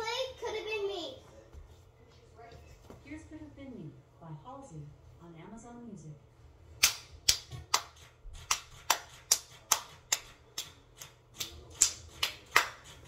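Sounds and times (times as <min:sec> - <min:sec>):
hand claps in a steady beat: 0:06.8 - 0:13.0.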